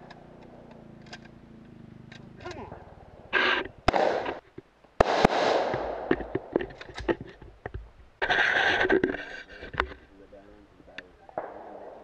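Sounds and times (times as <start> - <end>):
faint cracks and pops: 0.0 - 5.0, 5.6 - 10.2, 10.9 - 12.0
pistol shots: 3.8 - 4.4, 5.0 - 6.5, 11.4 - 12.0.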